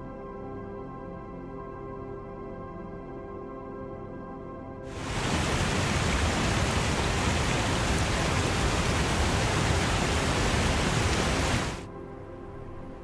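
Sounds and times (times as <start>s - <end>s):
waterfall rushing: 4.9s - 11.8s.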